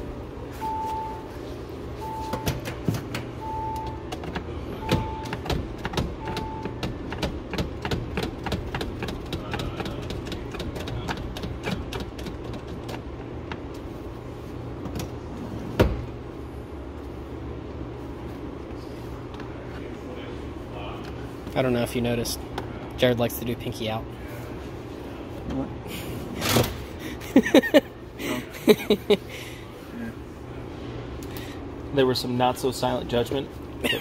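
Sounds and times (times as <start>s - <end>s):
low steady hum: 0.0s - 34.0s
repeating warning beep: 4.8s - 5.4s.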